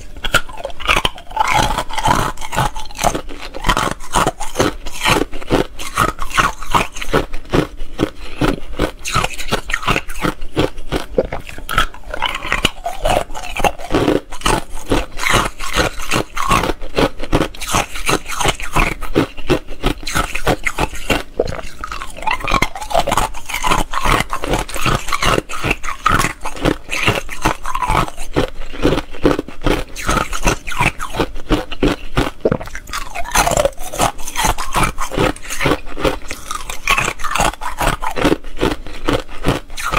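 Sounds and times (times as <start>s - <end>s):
ice cubes crunching: 0.0s - 39.9s.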